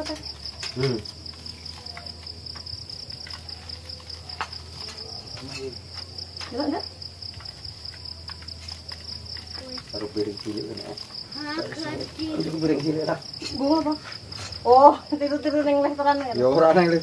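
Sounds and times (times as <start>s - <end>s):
crickets trilling: 0.0s - 17.0s
plates and utensils clinking: 3.7s - 6.5s.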